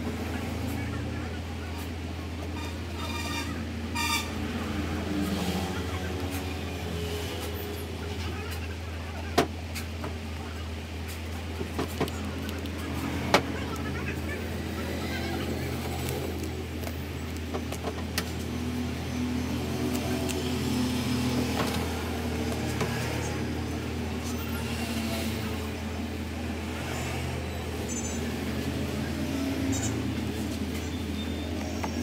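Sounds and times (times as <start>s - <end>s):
low hum of vehicle engines: 0.0s - 32.0s
cling film crinkling: 15.6s - 17.8s.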